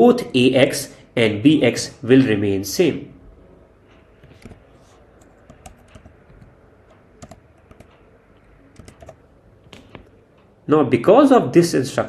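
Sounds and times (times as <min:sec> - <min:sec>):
keyboard typing clicks: 0:04.2 - 0:10.2.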